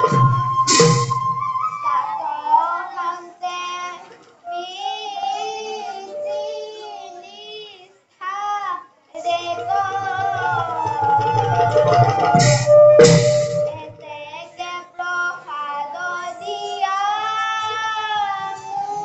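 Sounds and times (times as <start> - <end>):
instrumental backing: 0.0 - 2.0, 9.2 - 14.1
high voice singing: 9.2 - 14.2.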